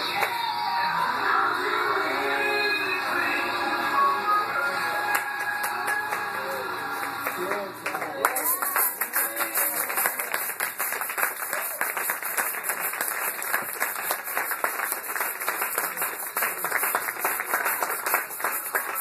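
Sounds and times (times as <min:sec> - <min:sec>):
crowd clapping and applauding: 0:00.0 - 0:00.4, 0:04.6 - 0:19.0.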